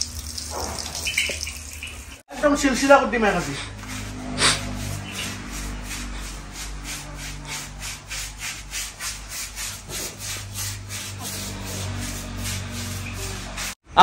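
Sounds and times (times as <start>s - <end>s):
brush scrubbing wet coat: 2.9s - 13.8s.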